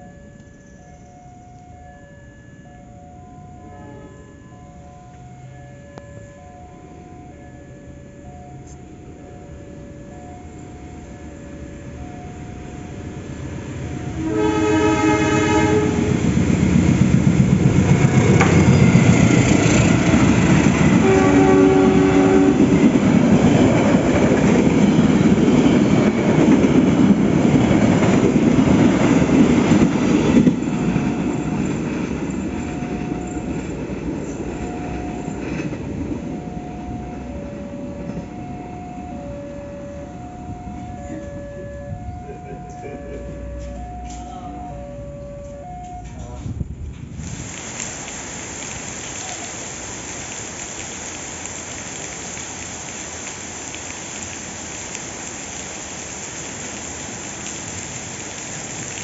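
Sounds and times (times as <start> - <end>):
two-tone crossing warning beeps: 0.0 - 14.2, 18.0 - 46.6
train rushing past with wheel clatter: 0.1 - 59.0
train horn: 3.6 - 4.6, 13.9 - 16.4, 17.9 - 23.6, 36.6 - 46.5.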